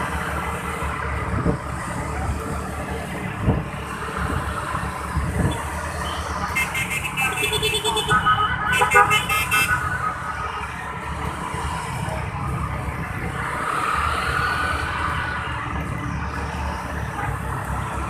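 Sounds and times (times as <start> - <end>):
motorbike engines: 0.0 - 18.0
wind rumble on microphone: 1.2 - 5.8.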